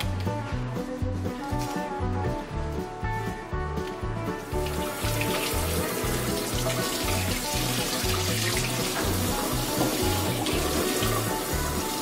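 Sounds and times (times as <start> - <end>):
background music with bass line: 0.0 - 12.0
faucet spray running over hands: 4.4 - 12.0.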